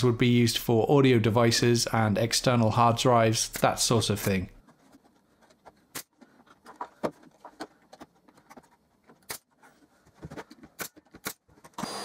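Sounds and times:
pneumatic nailer shots: 10.8s - 12.0s.

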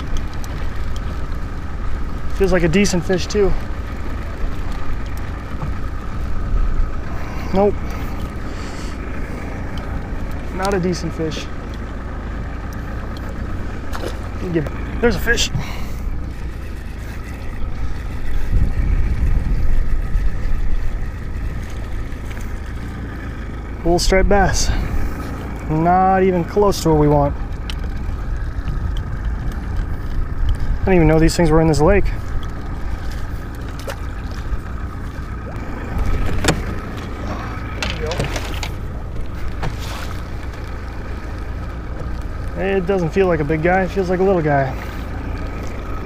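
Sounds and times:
water lapping around boat: 0.0s - 46.0s
wind rumbling on microphone: 13.6s - 22.7s, 26.5s - 42.4s.

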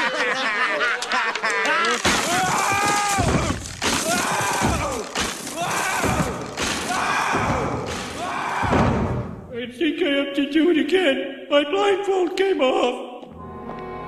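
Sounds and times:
wooden floor crashing: 1.9s - 9.5s
heavy thuds: 2.1s - 9.5s.

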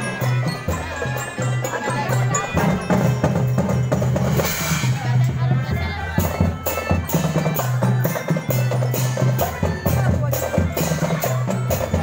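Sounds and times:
marching drum band playing: 0.0s - 12.0s.

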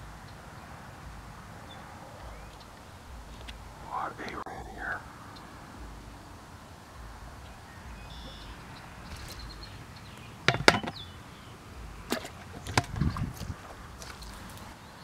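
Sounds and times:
low thumps: 5.7s - 9.9s, 11.8s - 14.5s
plastic bucket lid knocks and clicks: 10.5s - 11.0s, 12.2s - 13.1s.

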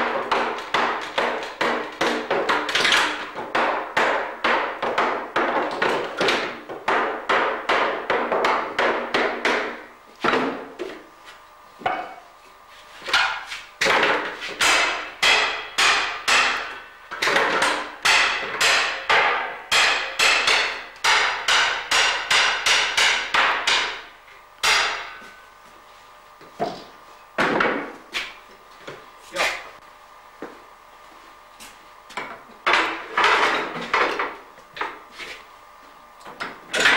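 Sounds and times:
hammer striking iron hoops: 0.0s - 10.6s, 13.1s - 25.5s.

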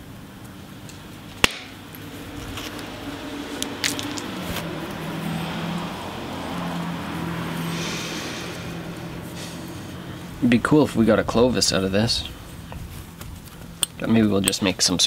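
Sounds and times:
metal striking stone crack: 1.4s - 1.8s.

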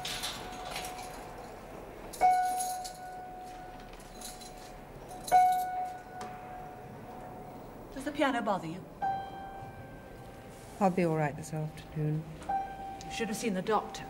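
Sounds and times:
high piano note ringing: 9.0s - 10.4s.

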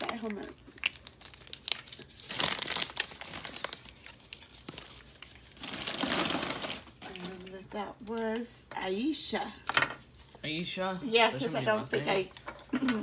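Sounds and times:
plastic crinkling rustles: 0.0s - 7.8s.

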